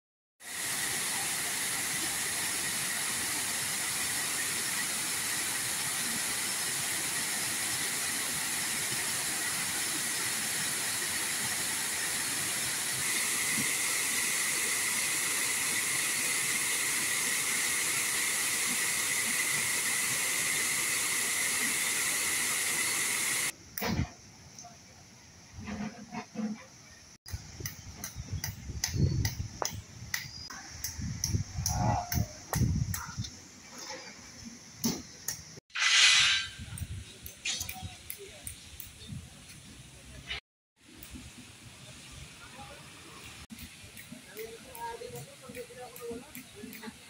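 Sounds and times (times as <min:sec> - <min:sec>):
water rushing over spillway: 0:00.4 - 0:23.6.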